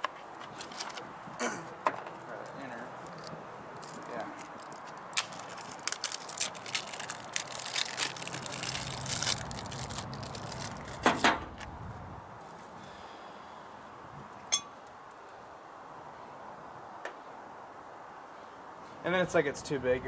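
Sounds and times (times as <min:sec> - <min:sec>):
ringing metallic ping: 0:14.5 - 0:14.8.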